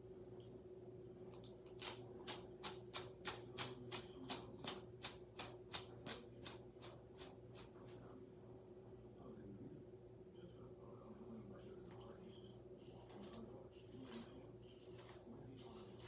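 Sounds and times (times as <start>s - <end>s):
hairbrush swishing through hair: 11.9s - 16.0s.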